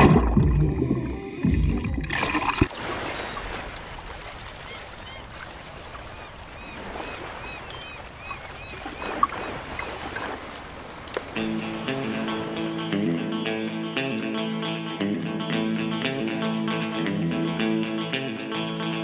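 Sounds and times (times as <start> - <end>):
water sloshing and splashing: 0.0 - 12.8.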